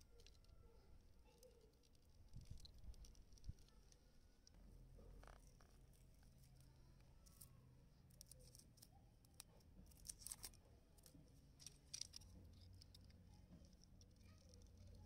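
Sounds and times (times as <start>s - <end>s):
cable being handled clicks: 8.1s - 15.0s.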